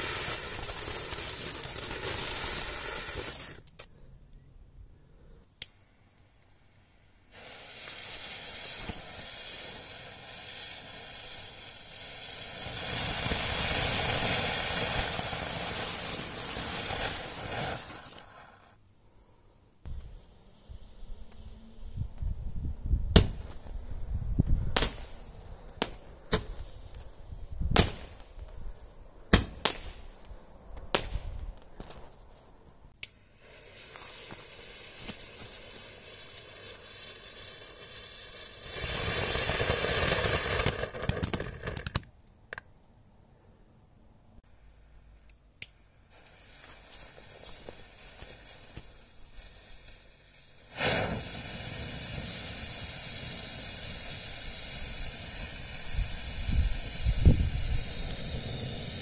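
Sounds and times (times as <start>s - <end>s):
firework bangs: 0.0s - 3.6s, 7.3s - 18.6s, 23.1s - 23.8s, 24.5s - 26.9s, 27.7s - 28.4s, 33.4s - 42.0s, 46.1s - 59.0s
firework fountain hissing: 0.0s - 3.7s, 7.2s - 18.8s, 33.2s - 42.0s, 46.0s - 59.0s.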